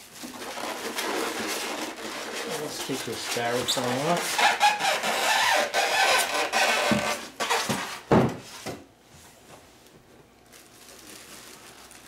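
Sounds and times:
plastic bag rustling and crinkling: 0.0s - 4.2s, 10.4s - 12.0s.

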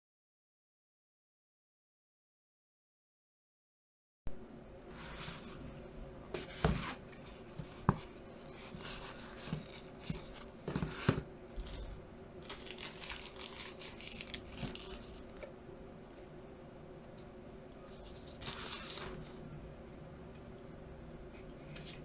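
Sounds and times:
cardboard box rustling and crinkling: 6.4s - 15.3s.

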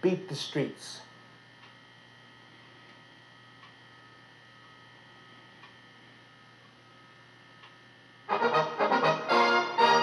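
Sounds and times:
faint electrical hum: 0.0s - 10.0s
soft ticks: 1.6s - 1.8s, 3.6s - 3.8s, 5.6s - 5.8s, 7.6s - 7.8s.

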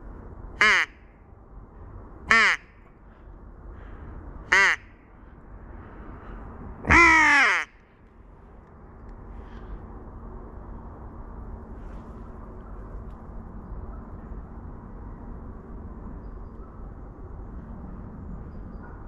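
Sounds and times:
crow caws: 0.6s - 1.0s, 2.3s - 5.0s, 6.9s - 7.8s.

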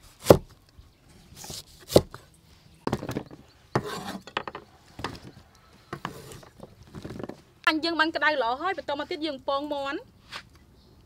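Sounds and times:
cleaver chopping on wooden board: 0.2s - 0.5s, 1.8s - 2.2s, 3.8s - 5.2s
blade scraping: 3.8s - 4.4s, 6.0s - 6.7s.

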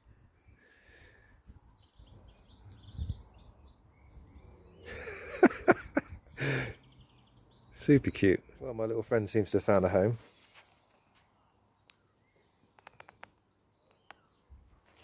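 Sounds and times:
small birds chirping: 0.0s - 15.0s
rustling and clicks: 12.6s - 15.0s.

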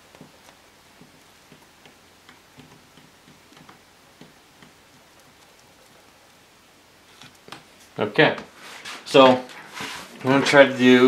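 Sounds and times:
faint clicks and taps: 0.1s - 6.4s, 7.1s - 8.5s.

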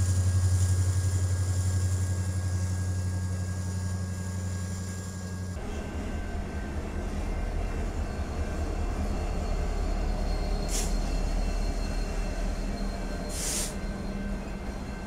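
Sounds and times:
train wheels rumbling on rail: 0.0s - 15.0s
short sharp hisses: 10.7s - 10.9s, 13.3s - 13.8s.

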